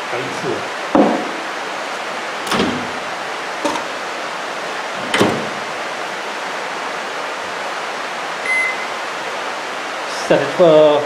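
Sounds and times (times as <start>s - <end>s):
rain hissing: 0.0s - 11.0s
microwave door knocks and clunks: 1.0s - 1.4s, 2.5s - 3.0s, 3.6s - 4.0s, 5.0s - 5.6s.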